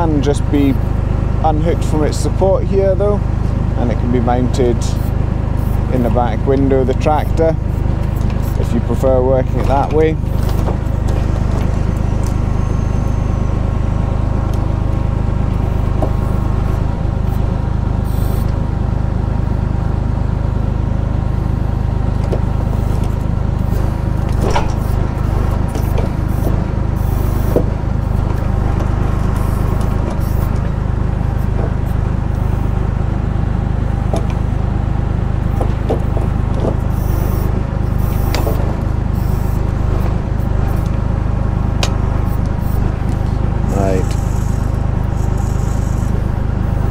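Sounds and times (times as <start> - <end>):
tractor engine running: 0.0 - 46.9
logs knocking: 35.6 - 36.9.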